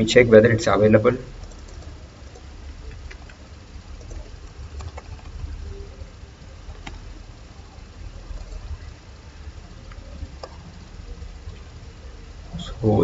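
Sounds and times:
keyboard and mouse clicks: 1.4 - 3.4, 4.0 - 5.5.

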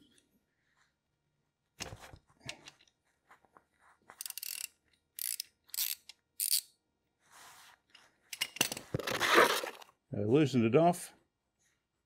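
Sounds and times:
socket ratchet clicking: 4.2 - 6.7.

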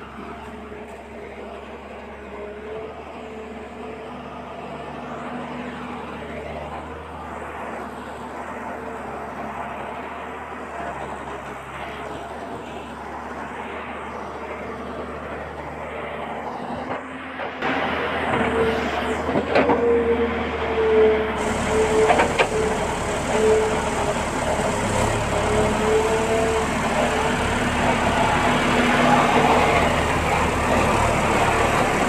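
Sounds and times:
engine-like drone: 0.0 - 32.0
constant hiss: 21.4 - 32.0.

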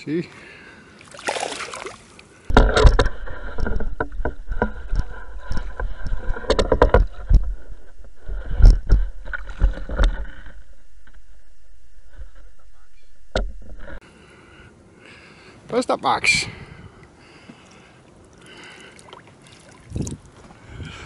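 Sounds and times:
heavy thumps: 2.5 - 14.0.

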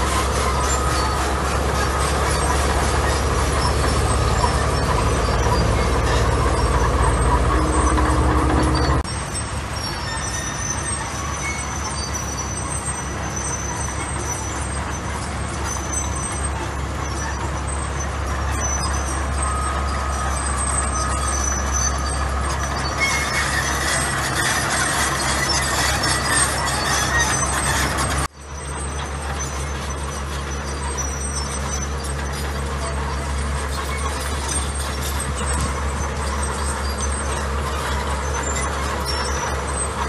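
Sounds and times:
diesel engine drone: 0.0 - 40.0
machinery squeaks: 0.0 - 40.0.

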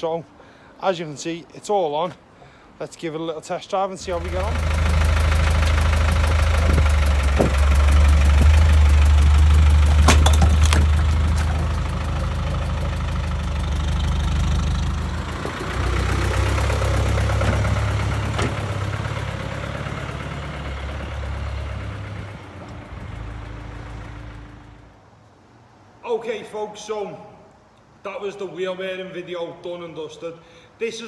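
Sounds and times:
diesel engine idling: 4.0 - 25.0
vehicle driving off: 4.0 - 25.0
sharp knocks: 6.4 - 11.7.

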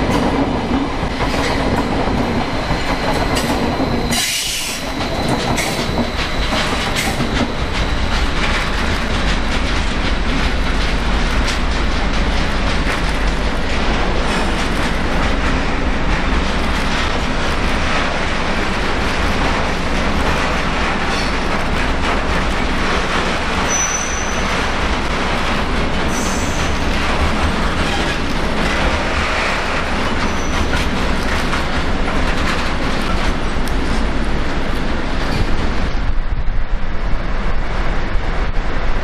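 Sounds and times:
train wheels on rails: 0.0 - 39.0
high-pitched wheel squeals: 23.6 - 24.5.

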